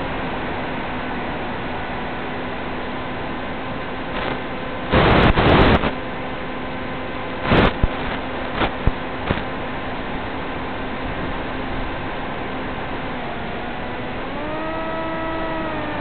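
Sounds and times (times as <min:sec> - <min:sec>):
faint hum tones: 0:00.0 - 0:16.0
radio static hiss: 0:04.1 - 0:06.0, 0:07.3 - 0:09.6
static bursts: 0:04.1 - 0:06.0, 0:07.4 - 0:09.5, 0:13.6 - 0:16.0.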